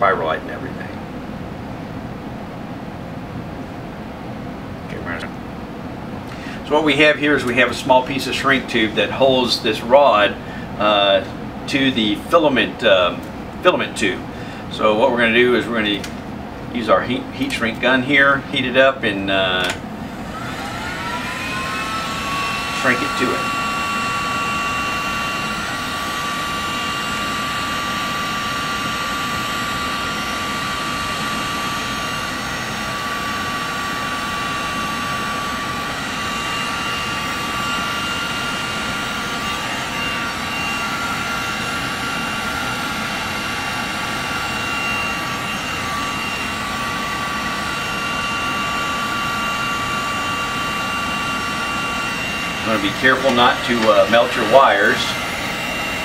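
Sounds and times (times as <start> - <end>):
high motor whine: 0.0 - 56.0
heat gun blowing air: 20.1 - 56.0.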